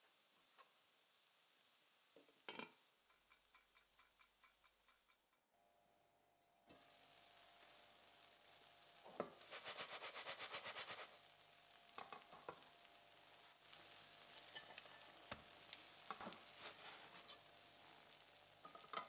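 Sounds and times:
pancake sizzling in a pan: 0.0s - 5.3s, 6.7s - 19.0s
ceramic plate set on pan: 18.6s - 19.0s.

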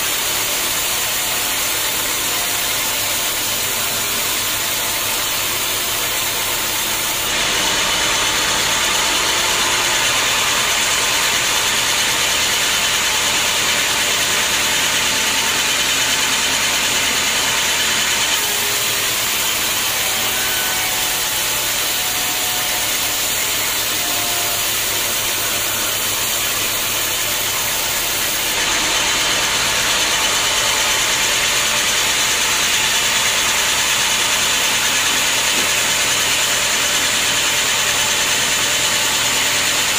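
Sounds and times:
machine running hum: 0.0s - 39.9s
band saw ripping wood: 14.7s - 31.3s.

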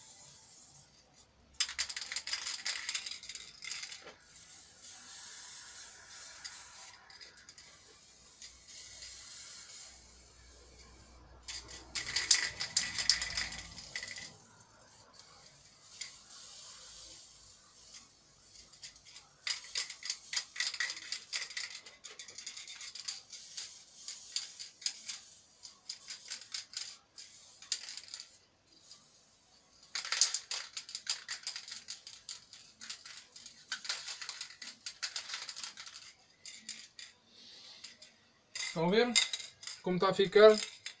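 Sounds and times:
scratchy clicking and rattling: 10.5s - 16.8s, 17.8s - 29.0s, 29.8s - 41.0s.

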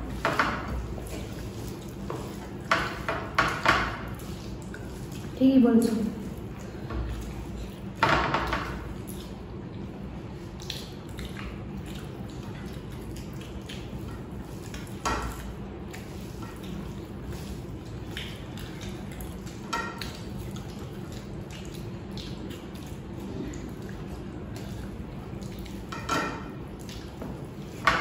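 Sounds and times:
wet chewing and squishing: 6.2s - 8.0s, 8.9s - 27.8s.

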